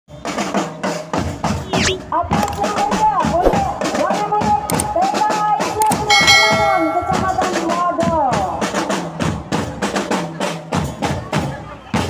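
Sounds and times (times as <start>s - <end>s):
bell lyra struck notes: 6.1s - 7.9s.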